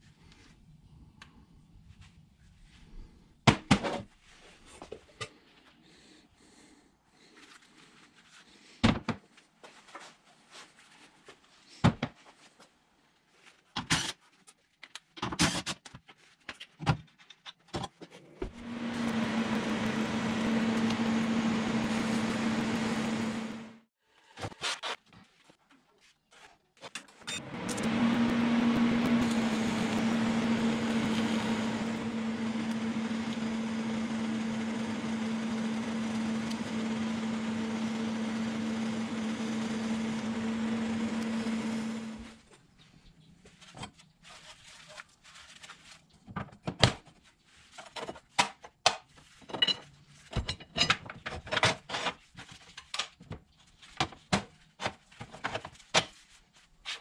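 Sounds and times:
power tool running: 18.5s - 23.9s, 27.3s - 42.4s.

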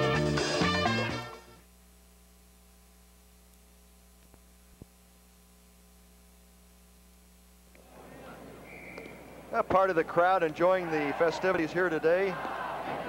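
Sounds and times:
music: 0.0s - 1.7s
faint mains hum: 0.0s - 13.0s.

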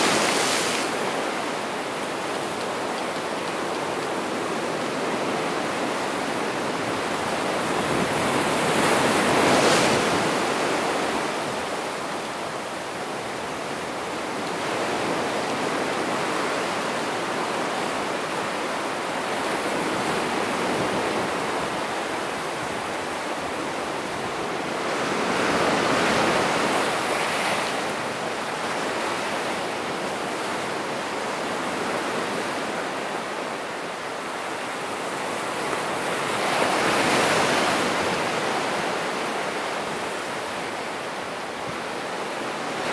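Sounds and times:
waves breaking: 0.0s - 11.8s
surf washing over rocks: 0.0s - 42.9s.

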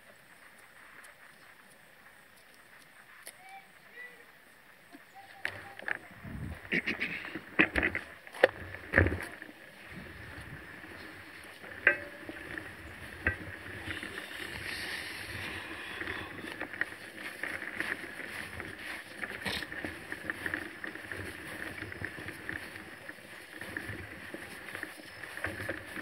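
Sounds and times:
bike rattling and knocking: 7.3s - 26.0s.

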